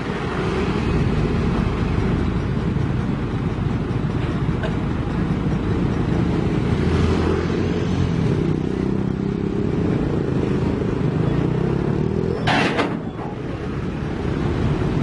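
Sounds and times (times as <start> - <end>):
diesel engine running: 0.0 - 15.0
motorcycle passing by: 6.4 - 12.5.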